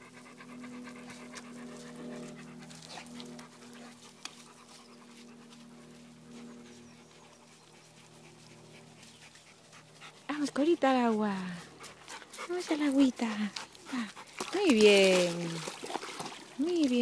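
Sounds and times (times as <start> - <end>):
dog panting: 0.0 - 15.0
faint low hum: 0.0 - 17.0.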